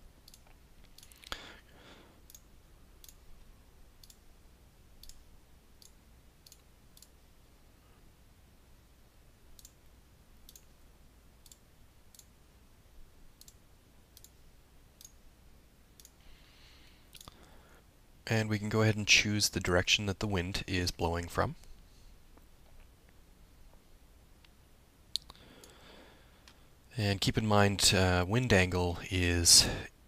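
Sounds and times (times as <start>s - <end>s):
faint computer mouse clicks: 0.2s - 1.4s, 5.8s - 7.2s, 9.6s - 9.8s, 10.5s - 10.7s, 14.2s - 14.4s, 17.1s - 17.5s.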